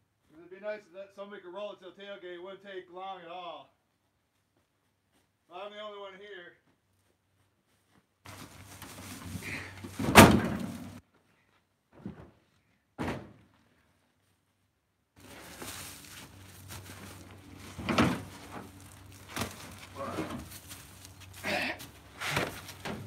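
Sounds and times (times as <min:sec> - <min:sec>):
firewood thudding in truck bed: 0:09.4 - 0:11.0, 0:13.0 - 0:13.4, 0:17.7 - 0:20.6.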